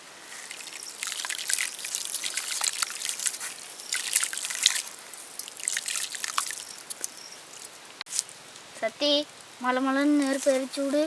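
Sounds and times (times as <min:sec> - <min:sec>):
salt crystals ticking into water: 0:00.3 - 0:07.7.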